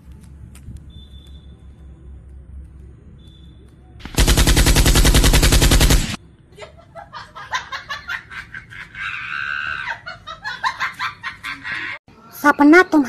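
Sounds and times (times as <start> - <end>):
rapid-fire cracks: 4.0 - 6.2.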